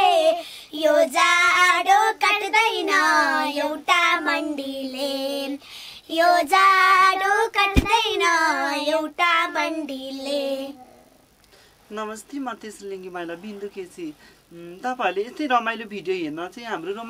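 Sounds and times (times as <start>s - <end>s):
girls singing together: 0.0s - 10.8s.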